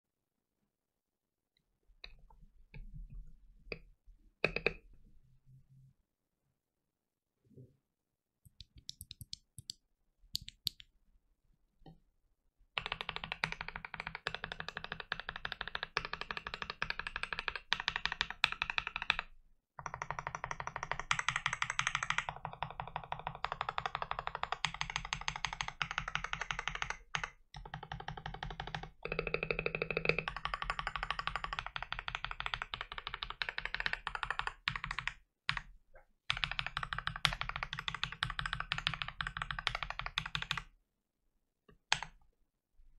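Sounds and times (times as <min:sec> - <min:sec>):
fast typing on mechanical keyboard: 0:12.8 - 0:35.7, 0:36.3 - 0:40.7.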